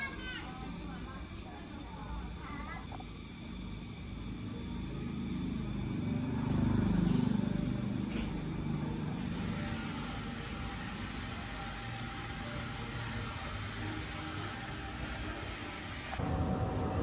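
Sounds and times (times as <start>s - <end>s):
passing motor vehicle rumble: 2.9s - 12.9s.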